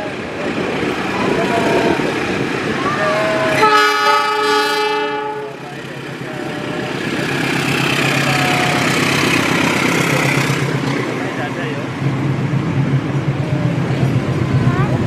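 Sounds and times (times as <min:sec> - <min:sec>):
train passing close by: 0:00.0 - 0:15.0
locomotive horn blast: 0:01.2 - 0:02.1, 0:03.0 - 0:05.7.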